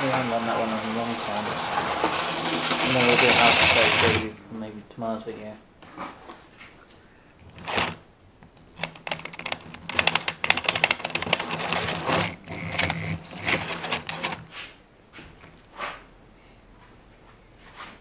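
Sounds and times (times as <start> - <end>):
model train wheels clicking: 0.0 - 4.3, 7.5 - 8.0, 8.8 - 14.4
motor hum: 0.0 - 4.5, 10.9 - 14.4.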